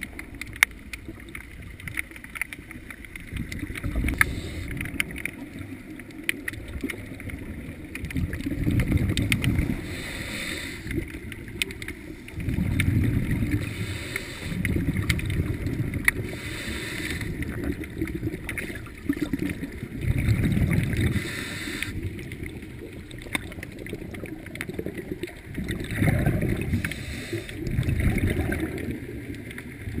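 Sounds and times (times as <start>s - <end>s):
exhaled bubbles rumbling: 0.0s - 30.0s
regulator inhale hiss: 4.1s - 4.9s, 9.6s - 11.0s, 13.6s - 14.7s, 16.2s - 17.5s, 21.0s - 22.1s, 26.7s - 27.7s.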